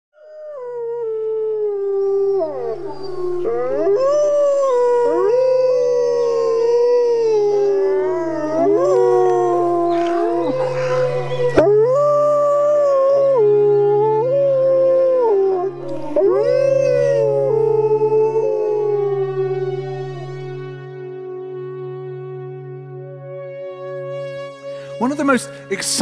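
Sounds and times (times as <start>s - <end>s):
wolves howling: 0.2s - 20.7s.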